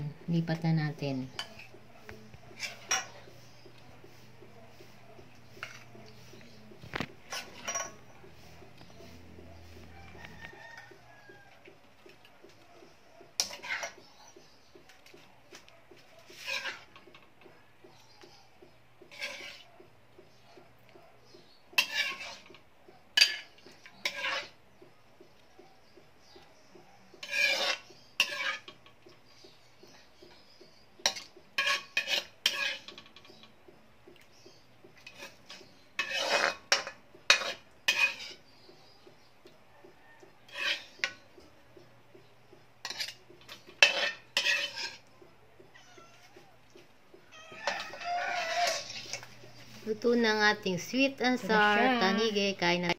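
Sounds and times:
metal ladle scraping wok: 2.5s - 10.8s, 13.4s - 14.1s, 16.2s - 17.2s, 19.0s - 19.7s, 21.7s - 22.6s, 23.2s - 24.6s, 27.2s - 28.8s, 31.0s - 33.4s, 35.0s - 38.6s, 40.5s - 41.2s, 42.8s - 45.1s, 47.4s - 50.0s
ladle clinking against bowl: 7.3s - 8.1s.

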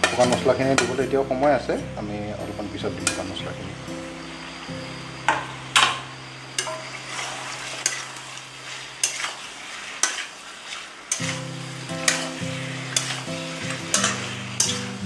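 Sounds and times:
metal spatula scraping pan: 0.0s - 2.0s, 6.5s - 15.0s
food sizzling in oil: 0.0s - 15.0s.

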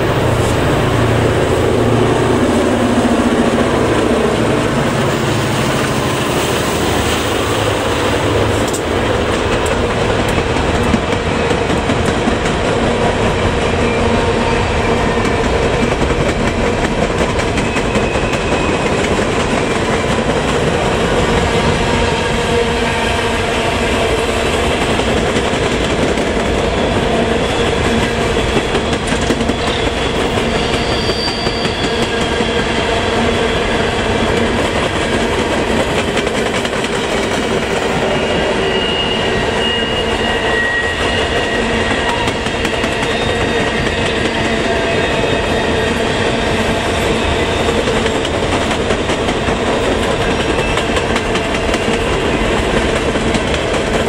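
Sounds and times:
train wheels clattering over rails: 0.0s - 38.8s, 40.5s - 54.0s
high wheel squeals: 26.8s - 34.1s, 37.9s - 47.8s.

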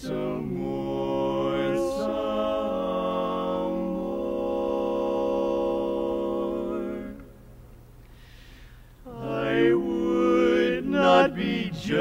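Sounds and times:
men singing a cappella chord: 0.0s - 7.4s, 9.0s - 12.0s.

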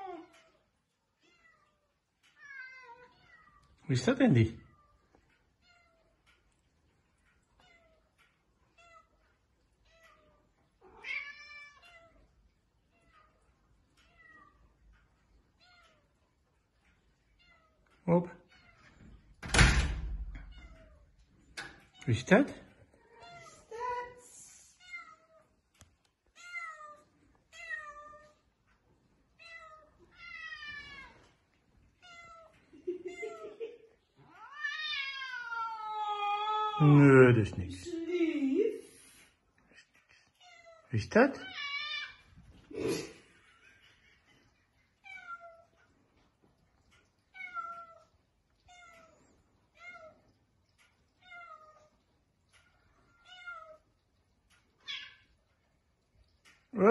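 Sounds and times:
cats meowing: 0.0s - 3.8s, 7.4s - 19.4s, 24.7s - 37.0s, 39.8s - 43.6s, 44.7s - 56.7s
cat meowing: 10.8s - 12.3s, 34.3s - 36.8s.

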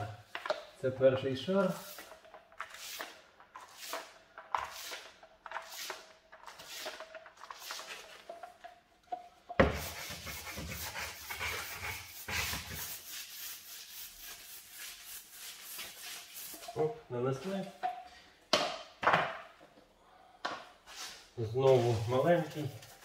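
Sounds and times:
paint roller rolling: 1.4s - 17.7s, 20.9s - 23.0s
paintbrush strokes: 9.7s - 17.6s, 20.9s - 23.0s.

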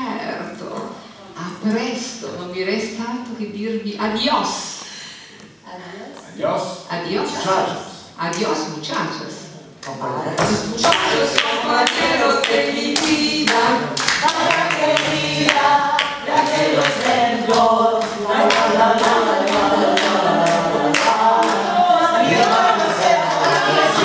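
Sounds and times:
hand-clapping on a beat: 9.8s - 24.0s
group of voices singing: 10.2s - 24.0s.

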